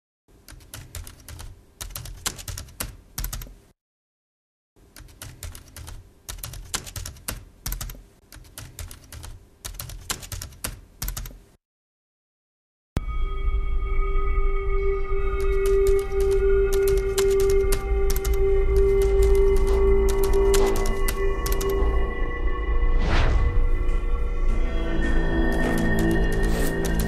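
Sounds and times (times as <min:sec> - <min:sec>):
computer keyboard typing: 0:00.5 - 0:03.5, 0:04.9 - 0:11.4, 0:15.4 - 0:21.8, 0:25.5 - 0:27.0.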